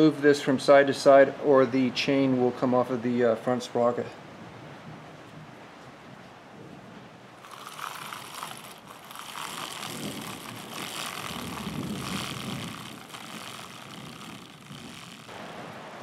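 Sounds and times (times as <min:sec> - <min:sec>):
bicycle chain churning through liquid: 0:07.4 - 0:15.3.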